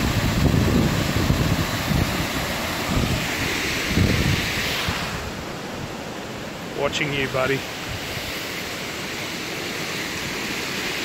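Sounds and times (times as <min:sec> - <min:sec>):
wind buffeting microphone: 0:00.0 - 0:05.5
waterfall rushing: 0:00.0 - 0:11.0.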